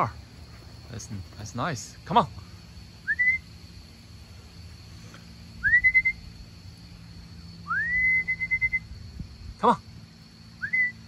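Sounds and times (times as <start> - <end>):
person whistling: 3.1 - 3.4, 5.6 - 6.2, 7.7 - 8.8.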